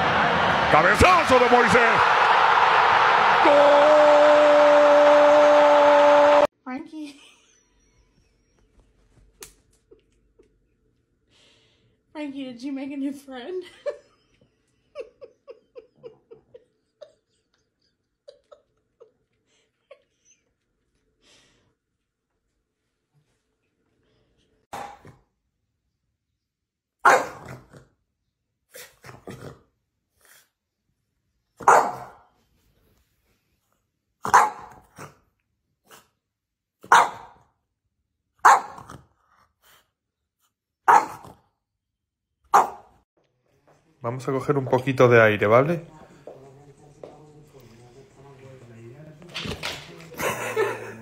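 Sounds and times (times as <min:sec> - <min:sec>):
soft breathy giggling: 0:13.6 - 0:20.8
dog barking: 0:24.7 - 0:25.1, 0:27.0 - 0:27.6, 0:31.6 - 0:32.3, 0:34.2 - 0:34.9, 0:36.8 - 0:37.4, 0:38.4 - 0:39.0, 0:40.8 - 0:41.4, 0:42.5 - 0:43.0.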